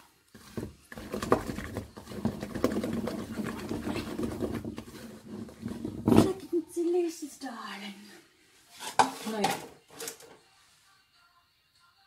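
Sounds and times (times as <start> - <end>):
wooden spoon scraping dough in bowl: 0.4 - 6.0, 8.7 - 9.6.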